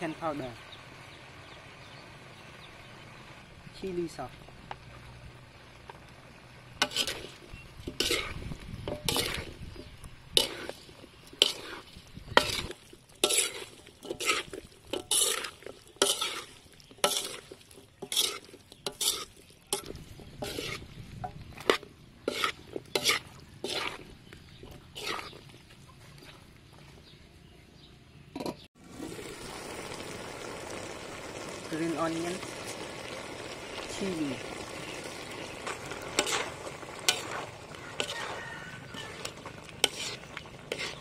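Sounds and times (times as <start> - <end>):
metal spatula scraping a wok: 6.7 - 25.6, 35.6 - 41.0.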